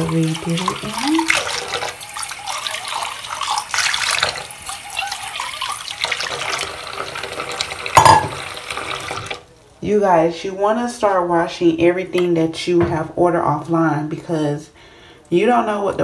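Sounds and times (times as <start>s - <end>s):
tap water splashing into a metal bowl: 5.4s - 9.4s.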